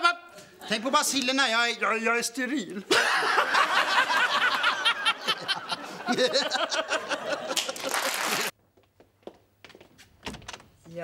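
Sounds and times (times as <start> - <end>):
people laughing heartily: 2.9 - 8.5.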